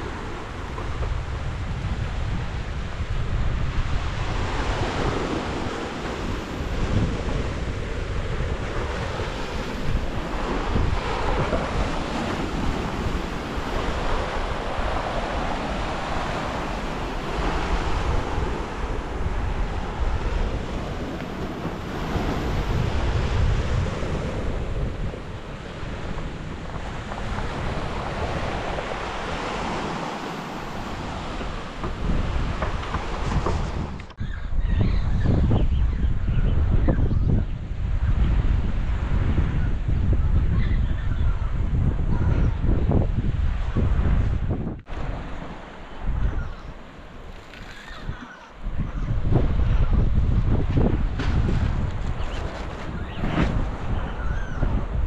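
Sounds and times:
sea waves washing onto shore: 0:00.0 - 0:34.2
wind buffeting microphone: 0:00.0 - 0:55.0.

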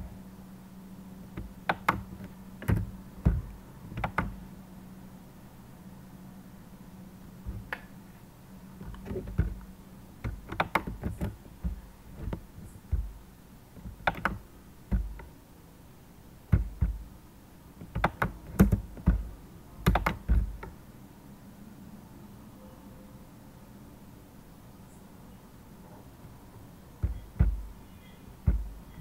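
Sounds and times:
keyboard typing: 0:01.4 - 0:04.4, 0:10.2 - 0:13.1, 0:13.8 - 0:15.3, 0:16.5 - 0:17.1, 0:17.8 - 0:20.7, 0:27.0 - 0:27.7.

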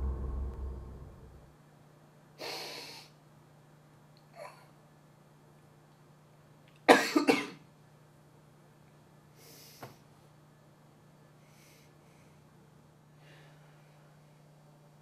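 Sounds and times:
low hum: 0:00.0 - 0:01.5
soft breaths: 0:09.3 - 0:10.2, 0:11.3 - 0:14.8.

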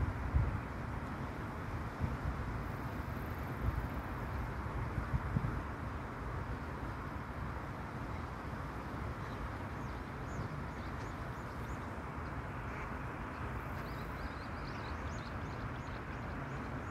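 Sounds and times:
wind buffeting microphone: 0:00.0 - 0:01.0, 0:01.6 - 0:05.8
stream rushing: 0:00.0 - 0:16.9.

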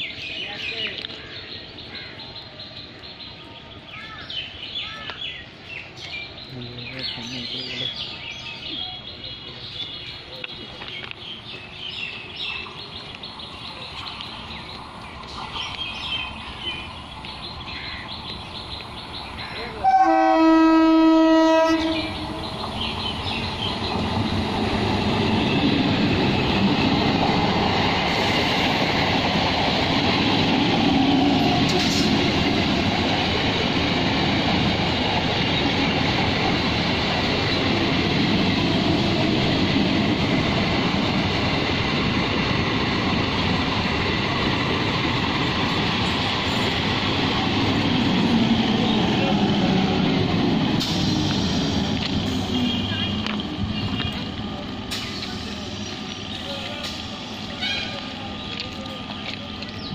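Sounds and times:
birds chirping: 0:00.0 - 0:59.9
train coaches rumbling on rails: 0:00.0 - 0:59.9
train horn: 0:19.8 - 0:22.2.

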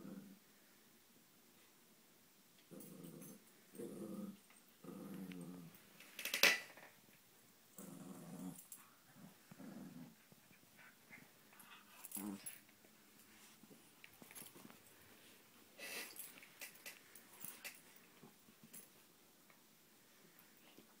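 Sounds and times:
dog play-growling: 0:02.7 - 0:05.8, 0:07.8 - 0:12.7.

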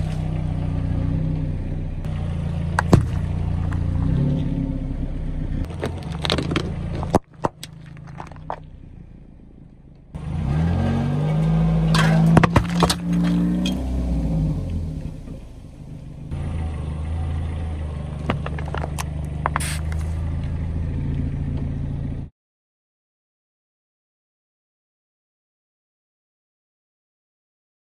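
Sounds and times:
car engine idling: 0:00.0 - 0:22.3
tyre crushing plastic bottles: 0:02.8 - 0:03.9, 0:05.7 - 0:08.7, 0:11.9 - 0:13.8, 0:18.3 - 0:20.1.

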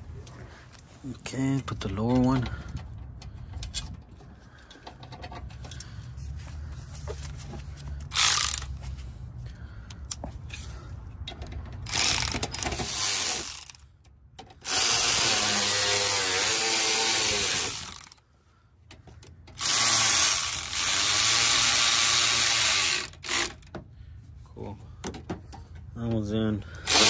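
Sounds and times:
electric ratchet running: 0:08.1 - 0:08.8, 0:11.8 - 0:13.8, 0:14.6 - 0:18.2, 0:19.5 - 0:23.7.

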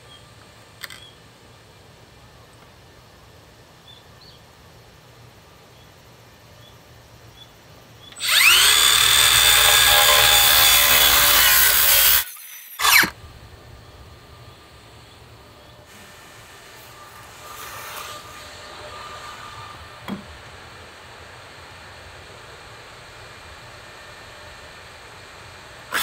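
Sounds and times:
circular saw cutting wood: 0:08.2 - 0:13.2, 0:15.9 - 0:20.1
motor burst falling in pitch: 0:08.2 - 0:13.2.

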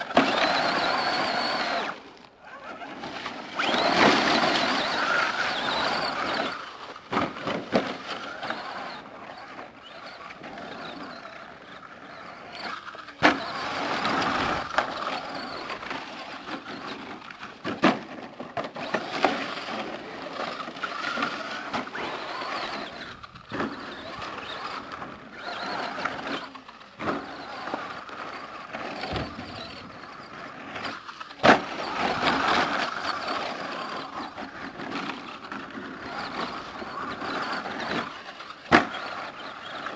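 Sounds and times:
electric motor whining: 0:00.0 - 0:07.0.

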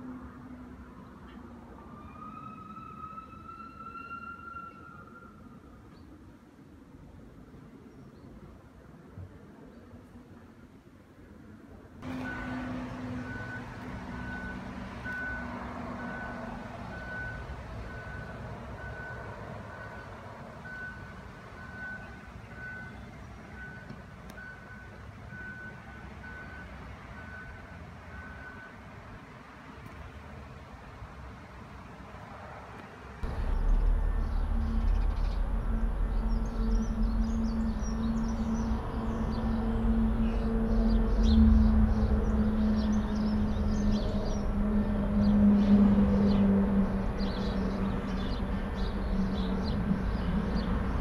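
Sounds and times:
truck engine rumbling: 0:12.0 - 0:22.8, 0:33.2 - 0:51.0
distant heavy machinery drone: 0:12.0 - 0:22.9, 0:33.2 - 0:51.0
truck reversing alarm beeping: 0:12.0 - 0:28.9, 0:33.2 - 0:46.4
songbirds chirping: 0:33.2 - 0:51.0.

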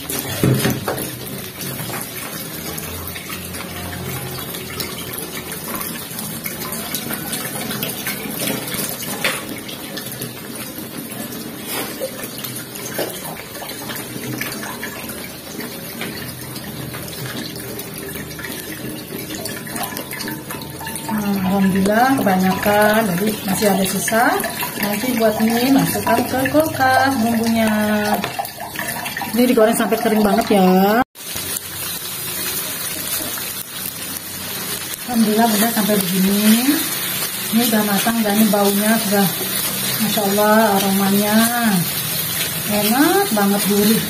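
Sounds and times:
paste sizzling in oil: 0:31.2 - 0:44.0.

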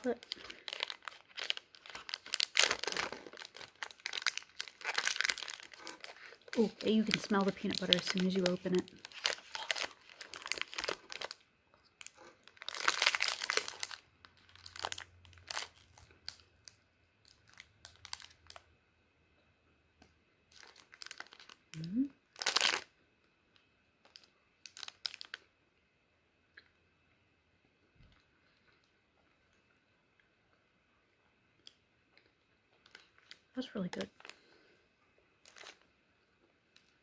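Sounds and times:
foil wrapper crinkling and tearing: 0:00.0 - 0:11.4, 0:12.0 - 0:18.6, 0:20.5 - 0:22.9, 0:24.0 - 0:25.4, 0:32.8 - 0:34.5, 0:35.4 - 0:35.8.

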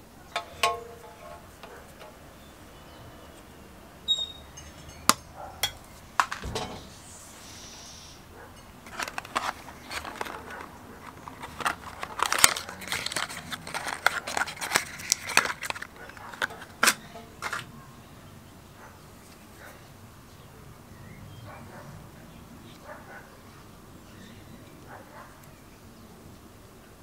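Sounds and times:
cardboard box crinkling: 0:08.9 - 0:17.6.

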